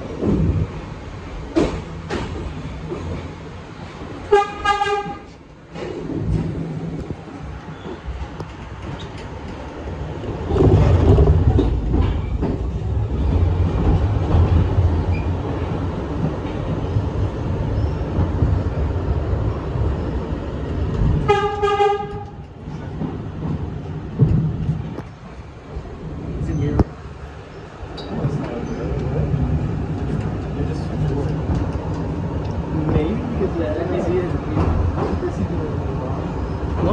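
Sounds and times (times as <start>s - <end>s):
subway train rumbling: 0.0s - 36.9s
train horn: 4.3s - 5.3s, 21.3s - 22.4s.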